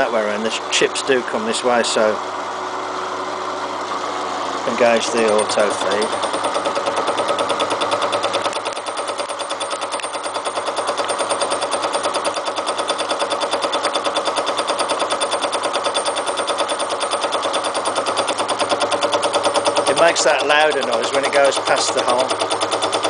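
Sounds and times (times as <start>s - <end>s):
fly cutter rattling through steel: 4.8s - 23.0s.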